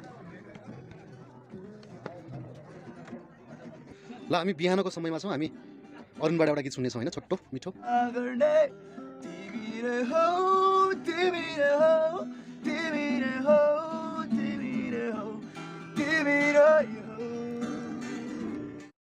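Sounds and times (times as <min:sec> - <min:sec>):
strummed acoustic guitar: 0:01.3 - 0:18.9
man singing: 0:07.6 - 0:18.9.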